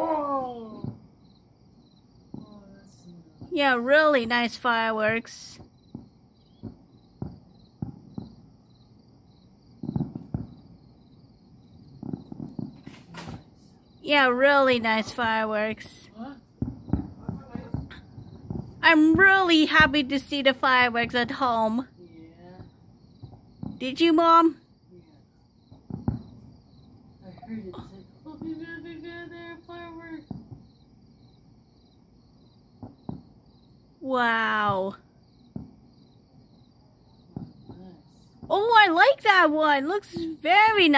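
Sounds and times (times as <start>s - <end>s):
distant firework bangs: 0.0s - 1.3s, 2.2s - 31.2s, 32.6s - 33.7s, 34.6s - 36.6s, 37.2s - 40.9s
crickets chirping: 0.0s - 40.9s
sharp pops: 12.0s - 13.5s.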